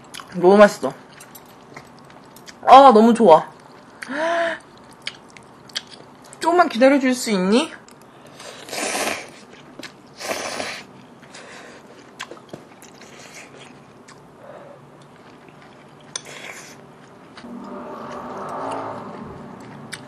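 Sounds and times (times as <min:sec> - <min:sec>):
quiet chewing: 0:01.1 - 0:02.6, 0:03.5 - 0:06.4, 0:07.8 - 0:20.0
person slurping noodles: 0:08.5 - 0:09.4, 0:10.2 - 0:10.9.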